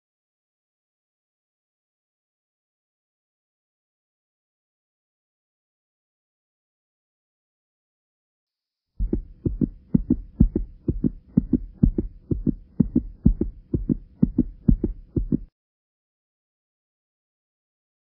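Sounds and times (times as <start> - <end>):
faint steady hum: 9.0 - 15.5
heartbeat thumps: 9.0 - 15.5.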